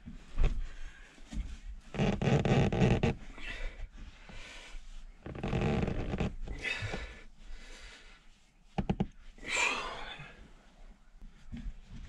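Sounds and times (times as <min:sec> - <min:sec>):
man breathing hard and straining: 0:03.1 - 0:04.8, 0:06.4 - 0:08.3, 0:09.4 - 0:10.5.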